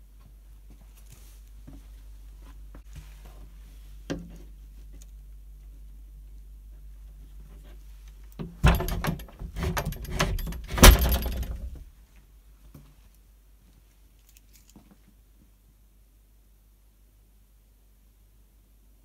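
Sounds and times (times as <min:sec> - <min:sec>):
door shutting clunk: 0:08.5 - 0:11.8
keys jangling in door lock: 0:08.6 - 0:11.8.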